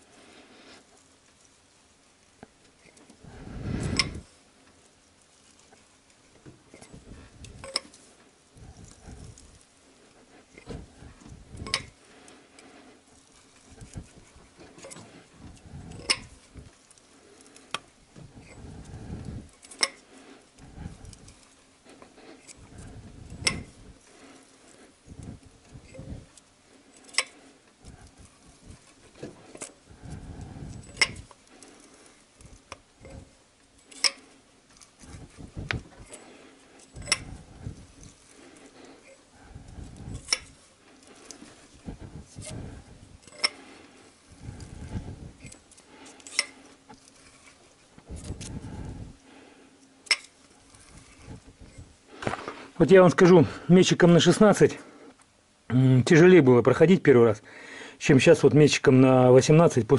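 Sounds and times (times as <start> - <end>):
sleeve rubbing on microphone: 3.2 - 4.3, 35.0 - 43.2, 44.0 - 45.7, 50.6 - 52.8.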